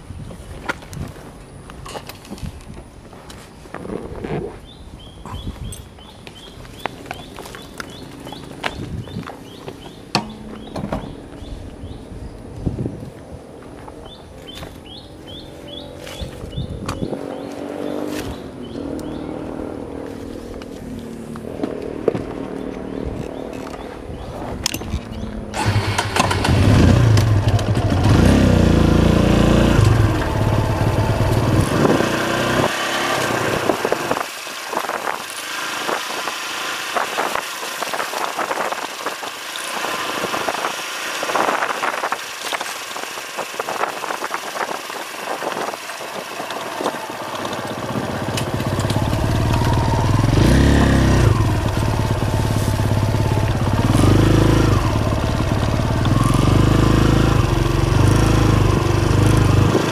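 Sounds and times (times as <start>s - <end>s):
bike rattling over rough ground: 0.0s - 12.0s, 20.0s - 59.9s
motorcycle engine revving: 14.8s - 59.9s.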